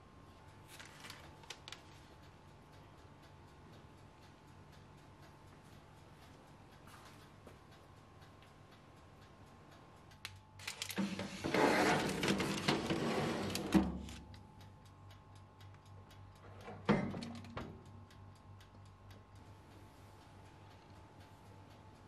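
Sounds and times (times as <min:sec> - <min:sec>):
oven door clunk: 0:11.0 - 0:14.1, 0:16.7 - 0:17.8
baking tray scraping on oven rack: 0:11.0 - 0:14.2.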